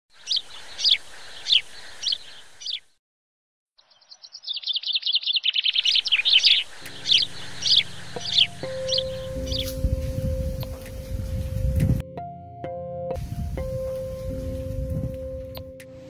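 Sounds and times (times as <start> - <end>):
songbird chirping and trilling: 0.1 - 3.0, 3.8 - 12.0
low musical drone: 6.0 - 16.0.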